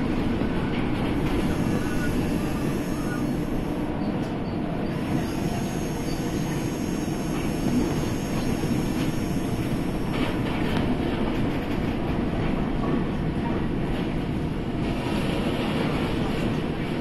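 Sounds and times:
monorail running on track: 0.0s - 17.0s.

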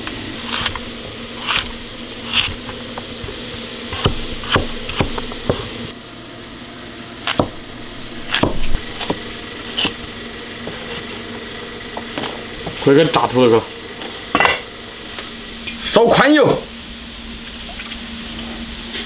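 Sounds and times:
knife striking chopping board: 0.5s - 0.8s, 1.4s - 1.7s, 2.3s - 5.7s, 7.2s - 7.6s, 8.2s - 9.2s.

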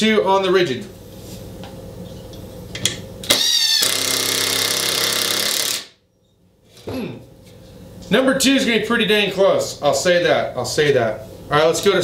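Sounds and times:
impact driver whining and hammering: 3.2s - 6.0s.

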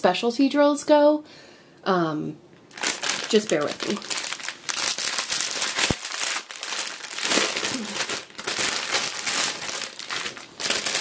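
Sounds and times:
plastic bags crinkling: 2.7s - 11.0s.

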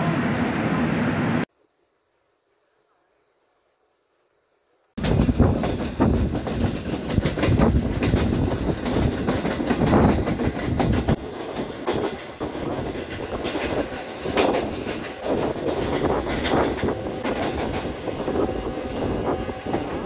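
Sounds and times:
train wheels rumbling on rails: 5.0s - 20.0s.

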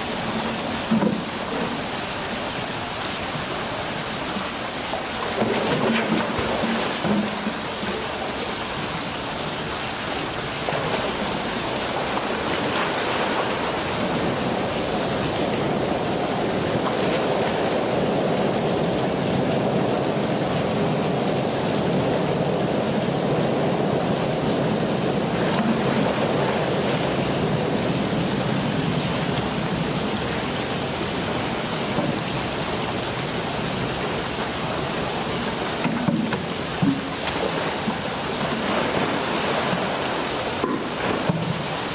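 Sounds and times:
water rushing and sloshing: 0.0s - 41.9s
splash into water: 35.8s - 41.9s.

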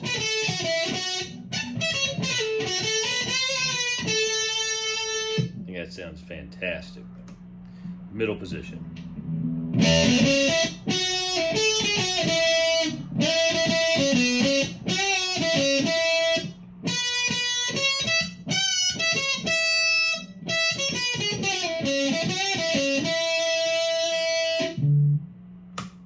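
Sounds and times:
fuzz-distorted electric guitar: 0.0s - 5.8s, 8.8s - 25.3s.

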